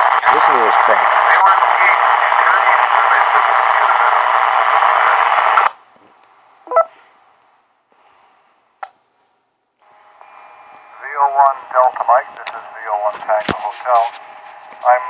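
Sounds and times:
radio hiss and static: 0:00.0 - 0:06.1, 0:09.8 - 0:15.0
faint voice under static: 0:00.2 - 0:05.6, 0:11.0 - 0:14.2, 0:14.8 - 0:15.0
pitched radio squawk: 0:06.7 - 0:07.0, 0:11.2 - 0:15.0.

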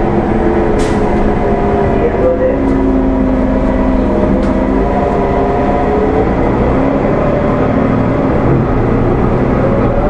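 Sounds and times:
bus diesel engine running: 0:00.0 - 0:10.0.

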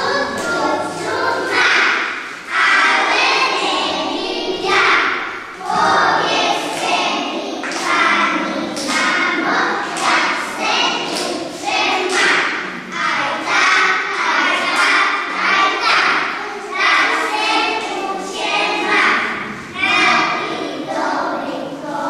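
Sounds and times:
children singing together: 0:00.0 - 0:22.0.

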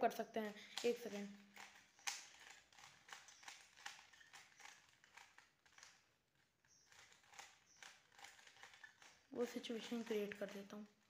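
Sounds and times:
puzzle cube layers clicking: 0:00.6 - 0:06.1, 0:06.8 - 0:10.7.

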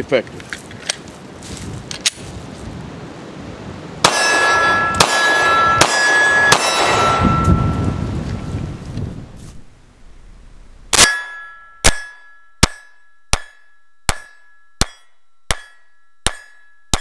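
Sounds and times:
pistol shots: 0:04.0 - 0:07.4
steel plate target clanging: 0:04.1 - 0:07.8, 0:10.9 - 0:17.0.

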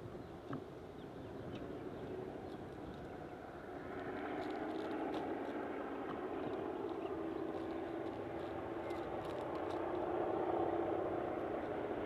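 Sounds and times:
diesel locomotive engine drone: 0:03.1 - 0:12.0.

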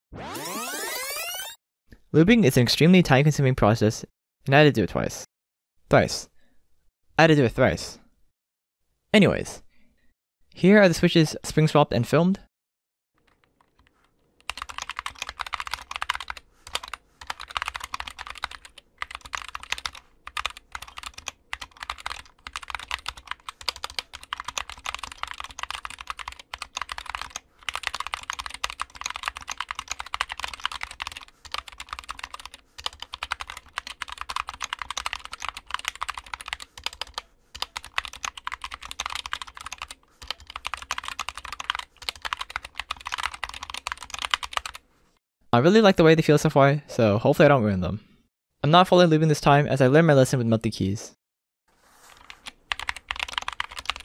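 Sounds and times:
fast typing on mechanical keyboard: 0:13.2 - 0:44.8, 0:52.1 - 0:54.0.

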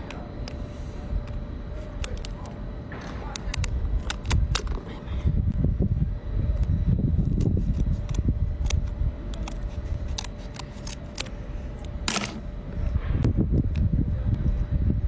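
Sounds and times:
scissors cracking crab shell: 0:03.4 - 0:04.8, 0:07.4 - 0:11.3
low rumble: 0:12.5 - 0:15.0.

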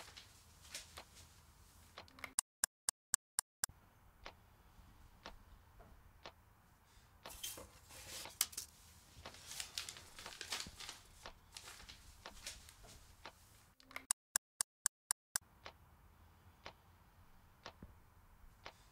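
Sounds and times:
rustling and crinkling: 0:00.0 - 0:02.0, 0:07.3 - 0:13.8.

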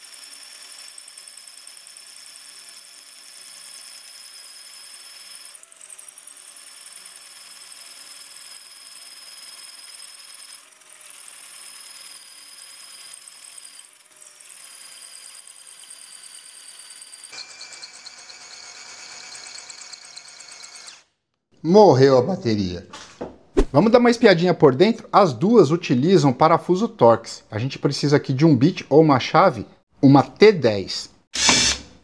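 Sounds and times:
cordless drill boring into concrete: 0:00.0 - 0:21.1, 0:31.4 - 0:32.0.

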